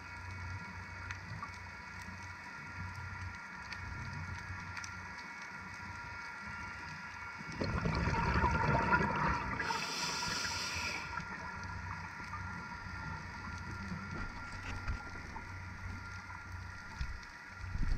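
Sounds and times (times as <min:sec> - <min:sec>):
low underwater rumble: 0:06.4 - 0:17.9
exhaled breath bubbling underwater: 0:07.6 - 0:11.3
regulator hiss: 0:09.4 - 0:17.8.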